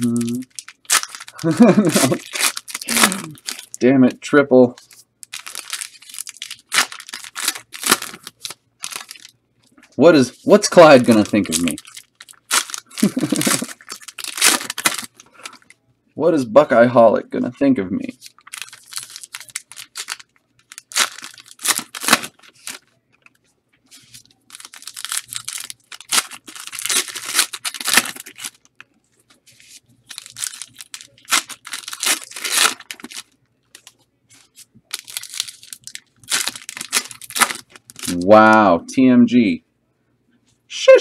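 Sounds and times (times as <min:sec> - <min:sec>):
card pack wrappers ripping: 0:00.0 - 0:03.8, 0:04.8 - 0:09.4, 0:10.5 - 0:15.7, 0:18.2 - 0:22.9, 0:23.9 - 0:28.8, 0:29.7 - 0:38.3.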